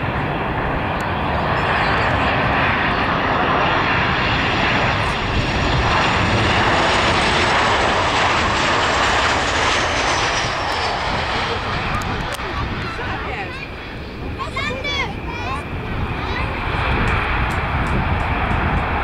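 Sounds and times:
high jet whine: 0.0 - 19.0
jet engine roar: 0.0 - 19.0.

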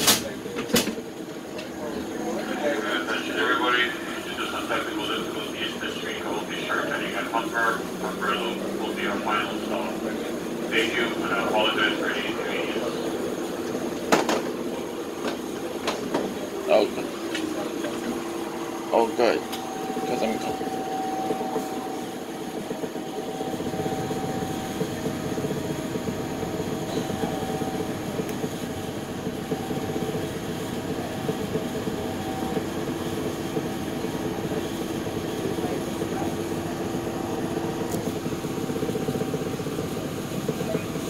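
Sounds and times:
streetcar wheels rumbling on rail: 0.0 - 41.0.

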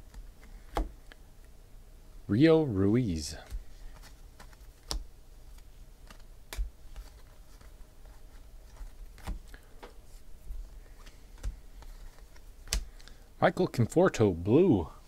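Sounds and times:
cards clicking and snapping: 0.0 - 1.2, 3.4 - 9.9, 10.8 - 13.2.

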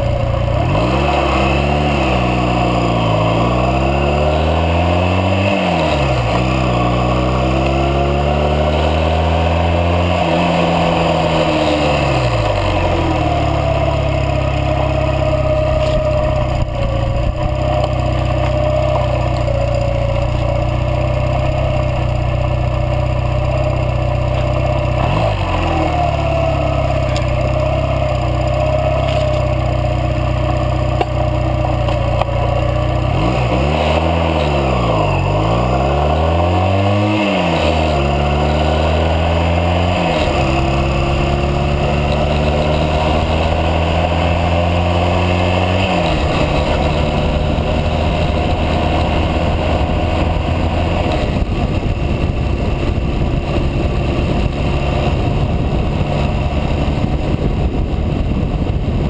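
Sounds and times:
motorcycle engine running: 0.0 - 59.0
wind noise: 15.2 - 18.2, 37.9 - 59.0.

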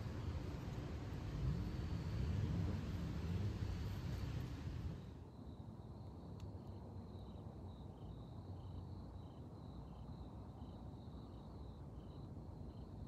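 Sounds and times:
distant traffic rumble: 0.0 - 5.3
insects chirping: 0.0 - 13.0.

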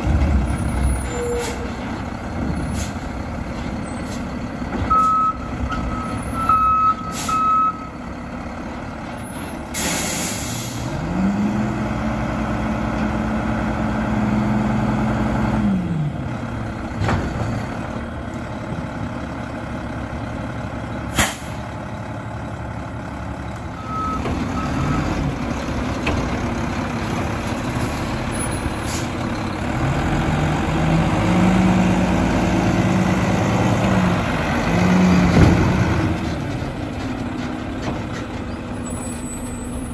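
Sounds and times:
truck reverse beeper: 4.9 - 8.1, 23.7 - 25.2, 38.8 - 39.9
truck engine revving: 9.6 - 18.3, 24.0 - 39.9
air brake hissing: 9.7 - 10.9, 21.1 - 21.6.

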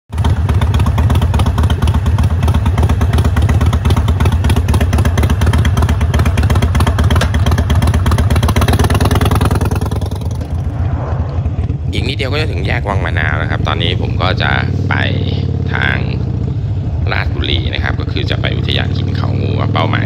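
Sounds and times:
motorcycle engine running: 0.1 - 10.8, 11.4 - 20.0.

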